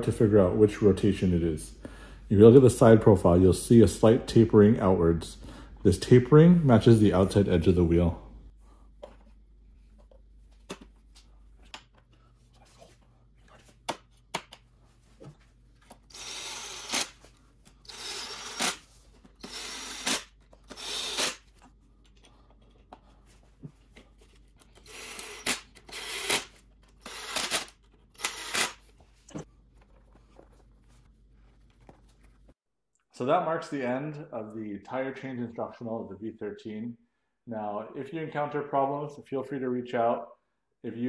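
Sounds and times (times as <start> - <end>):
power driver driving screws: 24.8 - 28.8.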